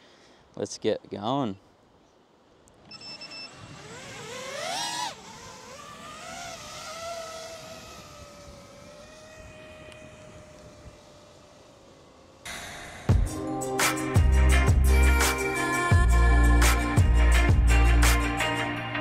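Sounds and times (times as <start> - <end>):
quadcopter motor whine: 2.8 - 13.1
electronic beep: 2.9 - 3.6.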